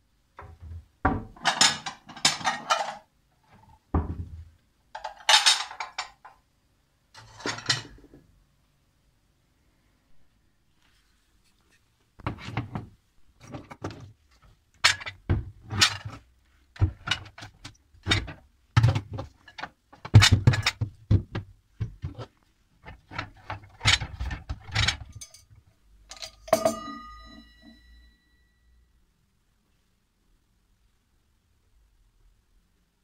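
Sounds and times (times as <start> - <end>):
kitchenware knocking and clattering: 0.4 - 4.4, 5.0 - 6.4, 7.2 - 8.2, 14.8 - 16.2, 16.8 - 22.2, 22.8 - 27.8
short metallic ring: 26.1 - 28.8.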